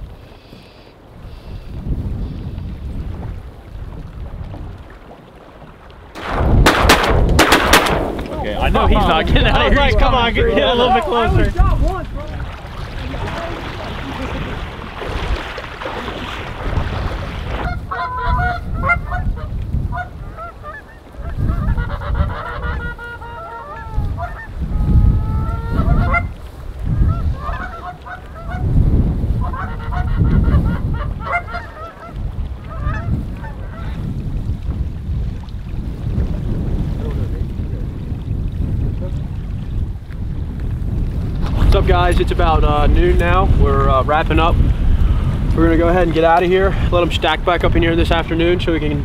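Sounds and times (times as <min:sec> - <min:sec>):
wind on microphone: 0:00.0 - 0:49.0
steady rushing noise: 0:06.2 - 0:15.5
geese honking: 0:17.6 - 0:26.4, 0:27.0 - 0:28.7, 0:29.4 - 0:34.0.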